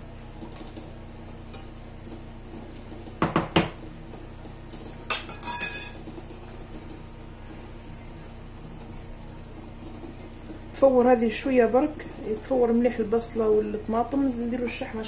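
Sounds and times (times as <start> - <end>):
metal fork clinking on pan: 5.1 - 6.0.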